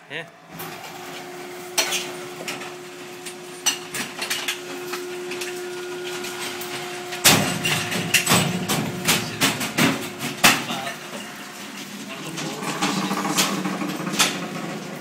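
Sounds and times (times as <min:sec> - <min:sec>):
trash compactor humming: 0:00.5 - 0:15.0
loud knocks and clattering: 0:06.4 - 0:15.0.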